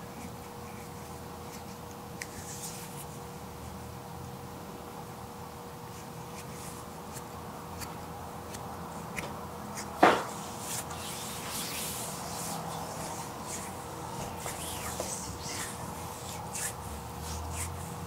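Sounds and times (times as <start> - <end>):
faint steady hum: 0.0 - 18.0
hands rubbing skin: 9.7 - 18.0.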